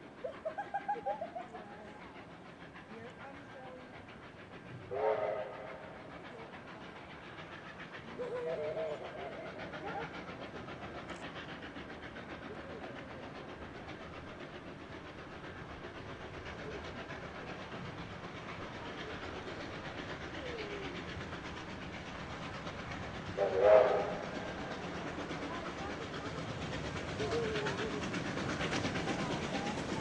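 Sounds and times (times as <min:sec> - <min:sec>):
steam train rumbling: 0:00.0 - 0:30.0
train whistle blast: 0:04.9 - 0:05.8, 0:23.4 - 0:24.2.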